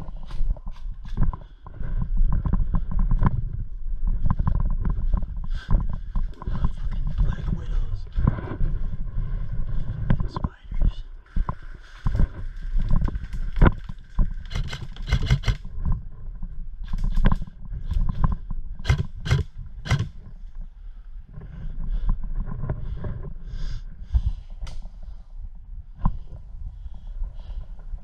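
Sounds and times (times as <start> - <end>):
wind rumble: 0.0 - 28.0
sharp cracks and knocks: 12.6 - 15.7, 16.8 - 20.2
camera handling noise: 13.6 - 15.7.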